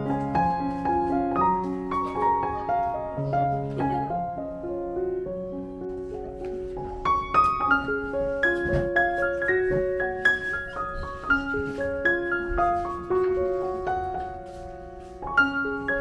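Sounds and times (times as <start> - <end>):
gentle piano music: 0.0 - 16.0.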